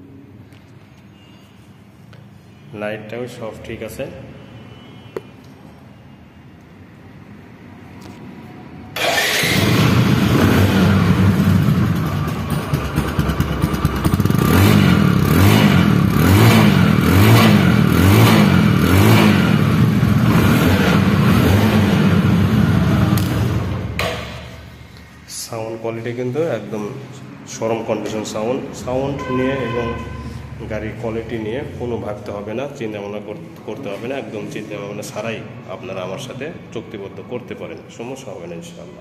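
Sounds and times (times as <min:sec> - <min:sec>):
motorcycle engine idling and revving: 0:09.0 - 0:24.7.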